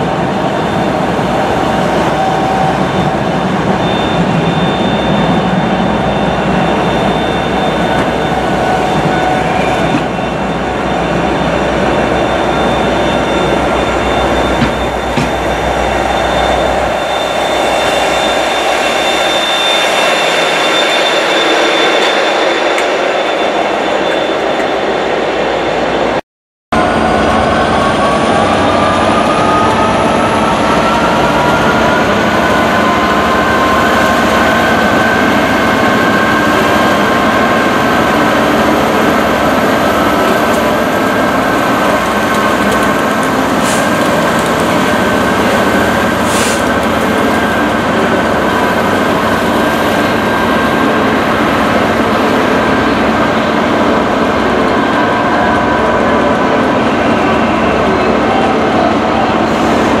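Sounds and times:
diesel locomotive engine: 0:00.0 - 1:00.0.

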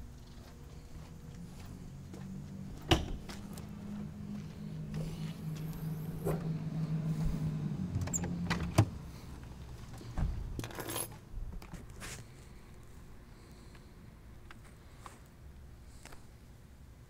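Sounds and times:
low hum: 0:00.0 - 0:11.6.

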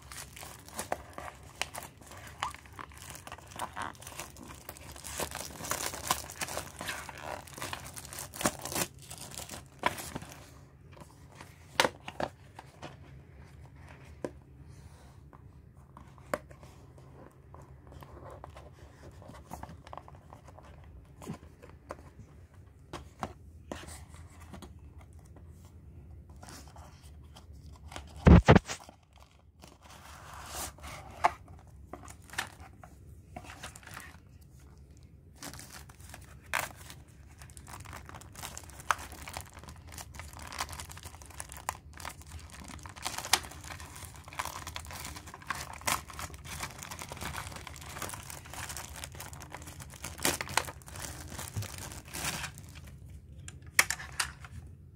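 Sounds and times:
plastic wrapping crinkling and tearing: 0:00.0 - 0:10.5, 0:35.3 - 0:53.4.

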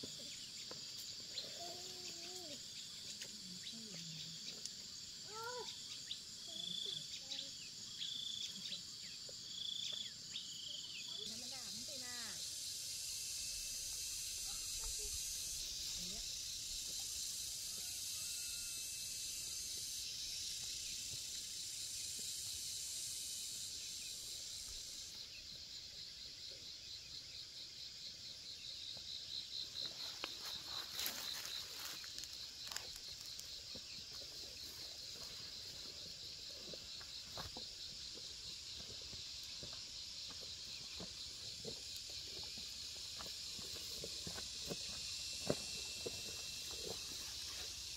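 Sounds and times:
insect chorus trilling: 0:00.0 - 0:47.9.

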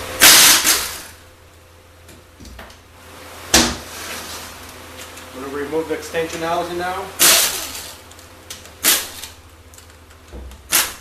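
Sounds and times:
compressed air tool bursts: 0:00.2 - 0:01.2, 0:07.2 - 0:08.0, 0:08.8 - 0:09.4, 0:10.7 - 0:11.0.

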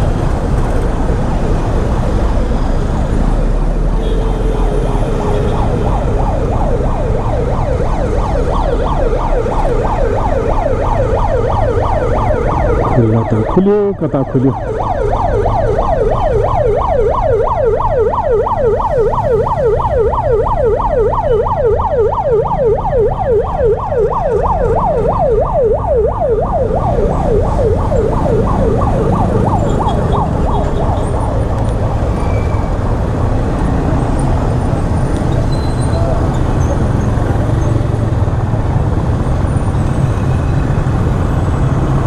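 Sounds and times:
road traffic rumble: 0:00.0 - 0:42.0
emergency siren yelping: 0:04.6 - 0:36.3.

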